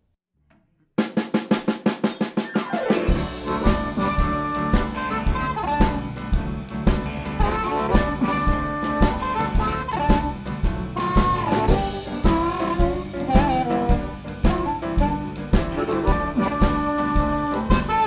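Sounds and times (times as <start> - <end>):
steady drum beat: 1.0 - 18.0
horns playing: 2.9 - 6.4, 7.2 - 18.0.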